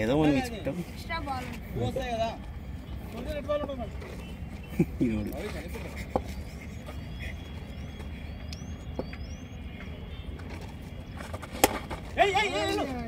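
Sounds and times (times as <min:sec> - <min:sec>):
faint high chirps: 0:02.7 - 0:11.4
cricket bat striking ball: 0:11.2 - 0:12.2.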